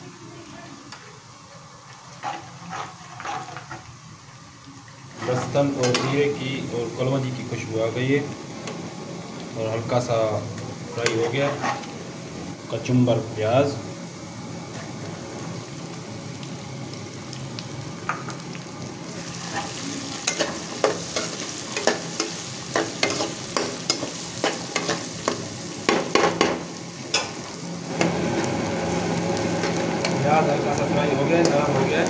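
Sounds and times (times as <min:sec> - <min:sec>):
onion sizzling in oil: 0:00.0 - 0:32.0
metal spatula scraping a pan: 0:02.2 - 0:03.9, 0:05.2 - 0:06.2, 0:11.0 - 0:11.9, 0:19.4 - 0:25.1.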